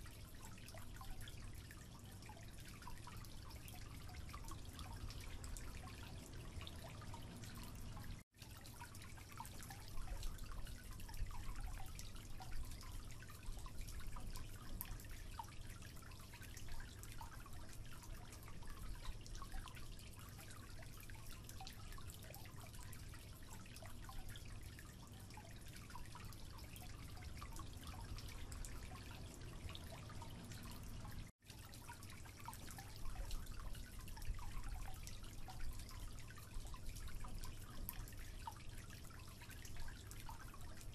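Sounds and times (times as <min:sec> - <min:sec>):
low hum and hiss: 0:00.0 - 0:40.9
water dripping into sink: 0:00.0 - 0:40.9.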